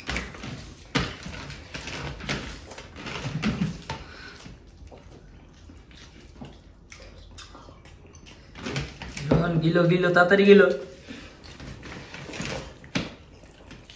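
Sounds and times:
fast chewing: 0.0 - 9.3.

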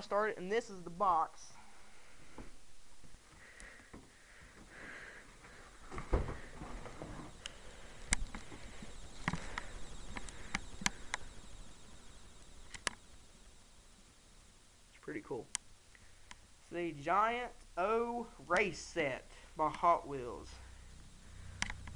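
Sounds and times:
heavy thump: 5.9 - 7.3.

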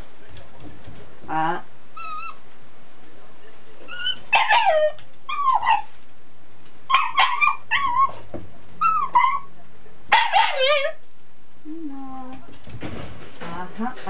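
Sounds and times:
young dog yipping and whining: 2.0 - 2.4, 3.8 - 5.9, 6.9 - 8.2, 8.8 - 9.5, 10.2 - 11.0.

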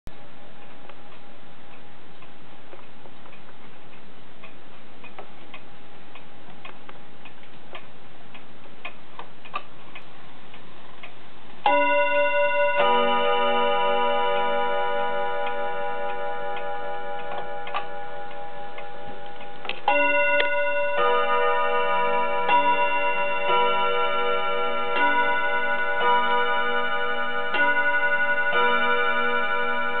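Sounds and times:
wall clock ticking: 0.2 - 30.0
clock chime notes: 11.6 - 30.0.

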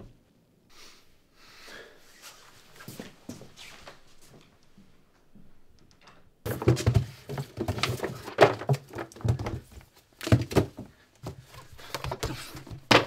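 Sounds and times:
rummaging through a cabinet: 6.5 - 13.0.

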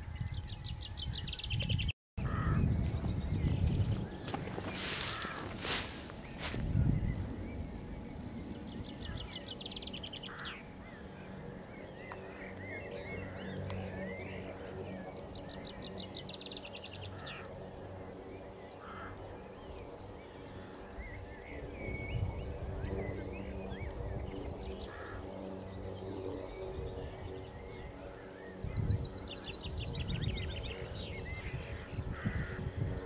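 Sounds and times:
songbird singing: 0.0 - 33.0.

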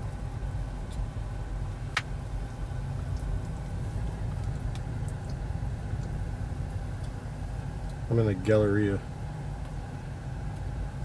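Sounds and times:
low cabin rumble: 0.0 - 11.0.

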